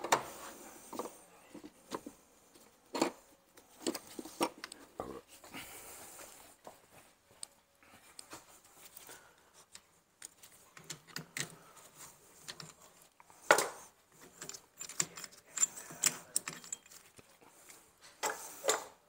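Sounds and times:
metal hand tools clinking: 14.4 - 17.1.

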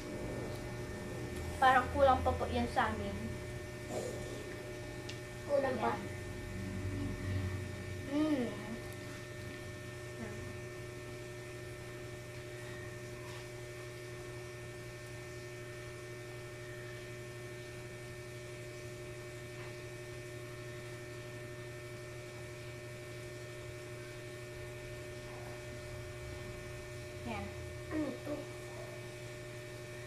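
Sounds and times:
electrical hum: 0.0 - 30.0.

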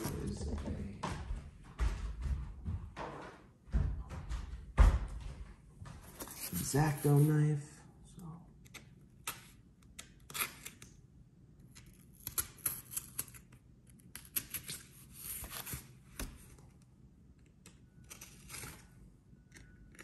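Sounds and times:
knife cutting tape on cardboard: 11.8 - 13.5, 14.1 - 16.4.

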